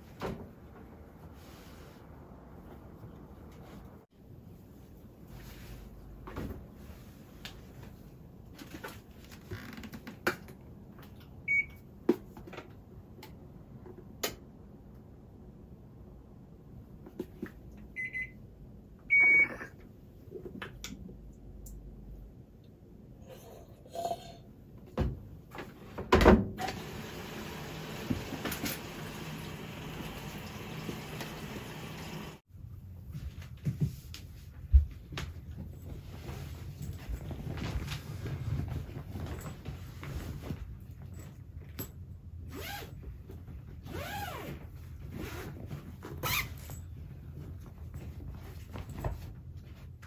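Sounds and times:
washing machine humming: 26.5s - 32.4s.

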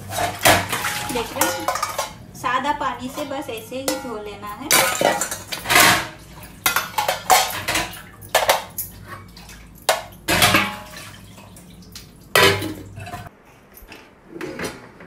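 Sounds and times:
water splashing: 0.0s - 2.2s, 3.0s - 13.3s
steel utensils clattering: 0.0s - 11.7s, 12.3s - 13.3s.

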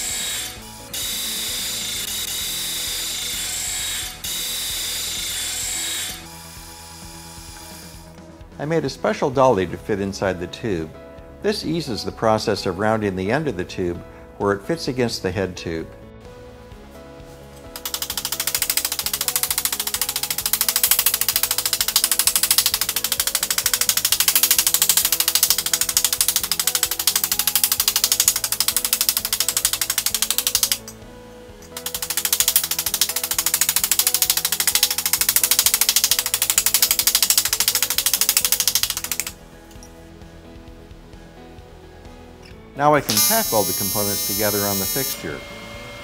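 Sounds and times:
disc sander grinding metal: 0.0s - 8.1s, 43.1s - 46.0s
faint background music: 0.0s - 46.0s.

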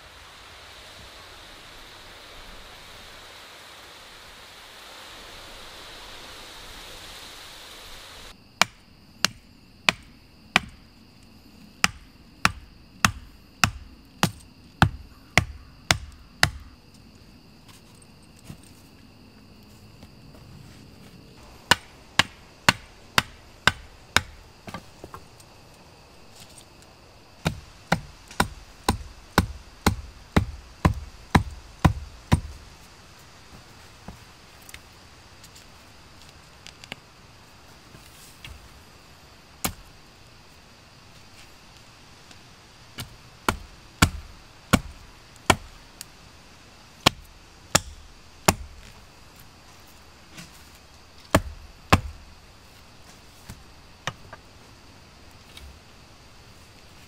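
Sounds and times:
steady rushing noise: 0.0s - 8.4s
hand tool striking with thuds: 8.6s - 10.8s, 11.8s - 16.7s, 21.5s - 25.2s, 27.4s - 32.6s, 43.0s - 45.7s, 47.0s - 48.9s, 51.3s - 52.2s.

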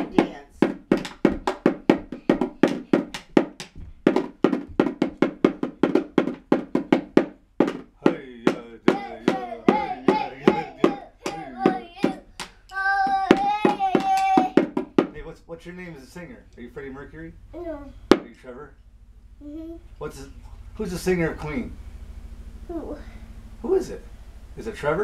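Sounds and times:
toy drum beaten: 0.0s - 15.2s
child singing: 8.8s - 14.8s.

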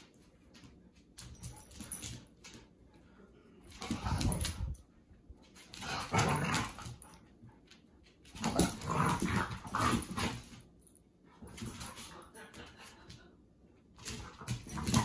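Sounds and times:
dogs grumbling and whining: 5.8s - 7.1s, 8.3s - 10.5s.

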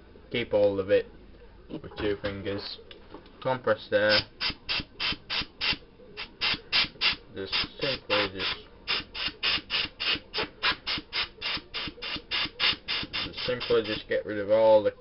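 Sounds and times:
compressed air gun hissing: 4.1s - 14.0s.

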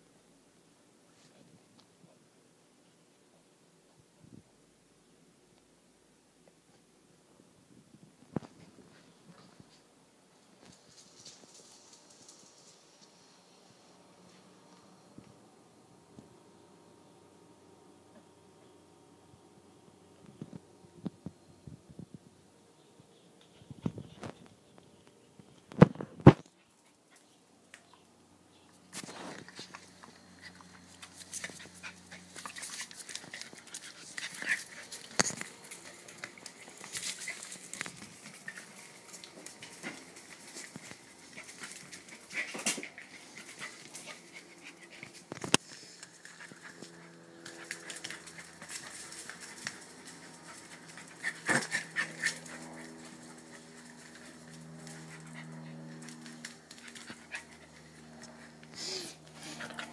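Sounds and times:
puppy vocal sounds: 54.9s - 59.9s.

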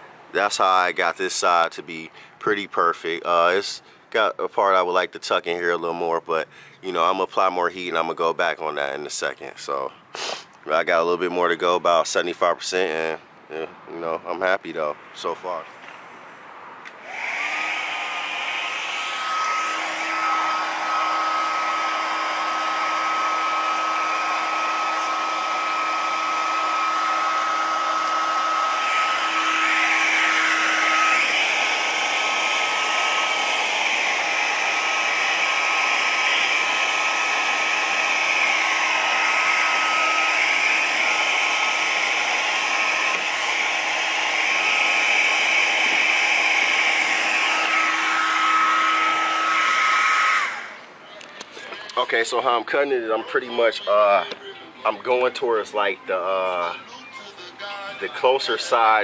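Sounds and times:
heat gun blowing with whine: 16.9s - 50.9s.

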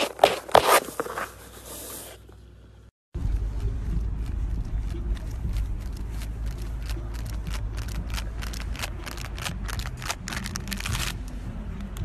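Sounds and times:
steady low rumble: 3.2s - 12.0s.

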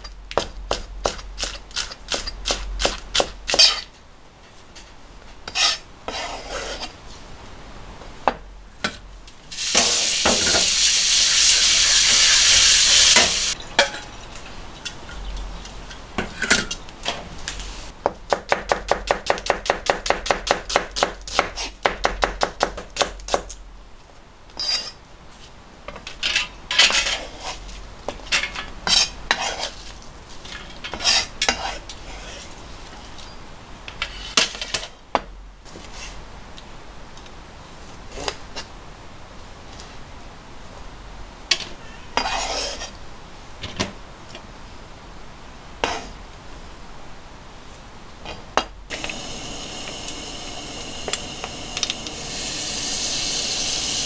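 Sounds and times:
steady hiss: 9.3s - 18.0s, 48.9s - 54.0s.

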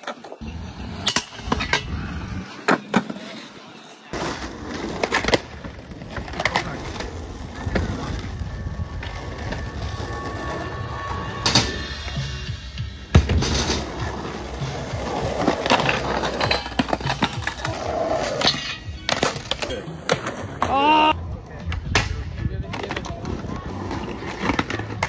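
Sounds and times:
skateboard wheels rolling on asphalt: 0.0s - 11.8s, 13.2s - 18.4s, 22.5s - 25.0s.

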